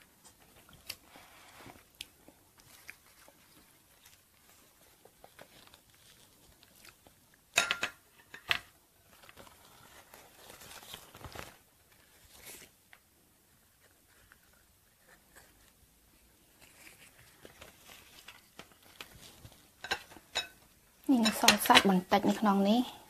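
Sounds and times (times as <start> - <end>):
leaf crinkling and rustling: 2.6 - 7.2, 9.0 - 12.7, 16.5 - 20.2
sharp leaf crackles: 9.2 - 11.6.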